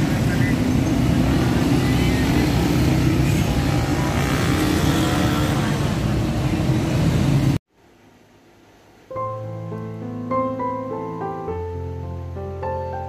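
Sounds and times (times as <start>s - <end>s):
city traffic rumble: 0.0s - 7.6s.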